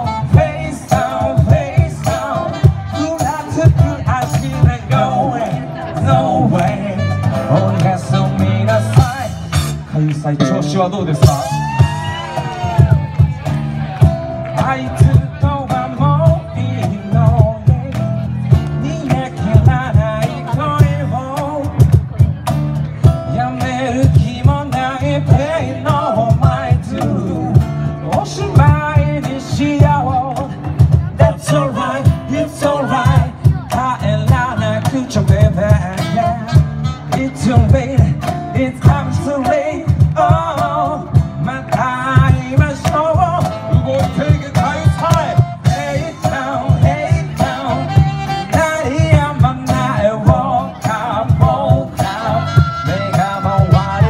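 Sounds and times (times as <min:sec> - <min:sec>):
saxophone: 0:00.0 - 0:01.1, 0:02.2 - 0:03.6, 0:06.9 - 0:08.8, 0:36.3 - 0:37.6, 0:43.4 - 0:46.3, 0:47.4 - 0:49.4, 0:52.1 - 0:54.0
man singing into a microphone: 0:00.0 - 0:13.0, 0:14.4 - 0:54.0
acoustic and electric guitar: 0:00.0 - 0:54.0
box-drum percussion with cymbals: 0:00.0 - 0:54.0.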